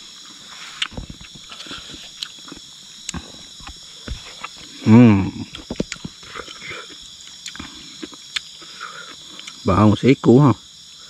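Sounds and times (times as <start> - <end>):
person belching: 4.8 - 5.5.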